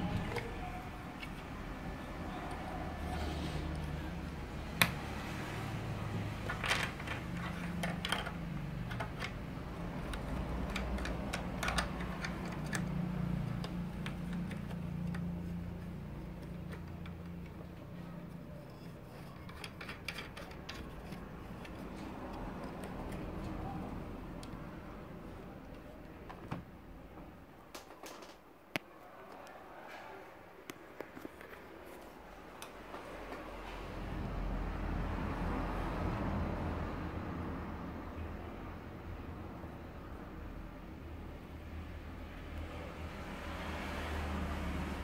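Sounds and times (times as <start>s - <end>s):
plastic clicks: 6.4s - 17.8s.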